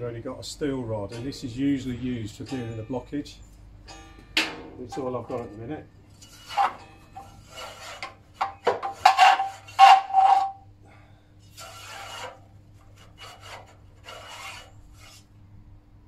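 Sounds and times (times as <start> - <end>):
steel rod scraping in boiler tubes: 4.8 - 10.7, 11.4 - 15.4.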